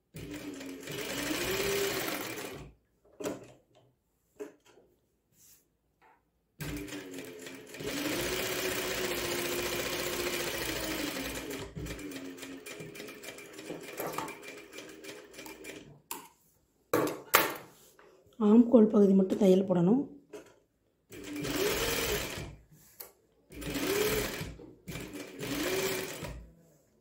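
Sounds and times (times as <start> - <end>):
sewing machine stitching: 0.1 - 3.5, 6.6 - 16.0, 21.1 - 22.6, 23.5 - 26.5.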